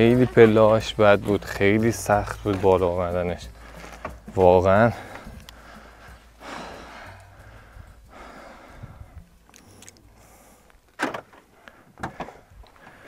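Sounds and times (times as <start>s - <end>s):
person breathing hard: 3.5s - 4.3s, 4.9s - 13.0s.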